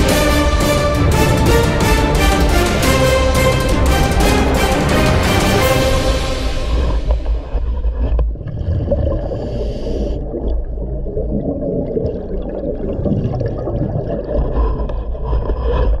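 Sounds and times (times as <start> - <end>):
underwater bubbles gurgling: 7.1 - 16.0.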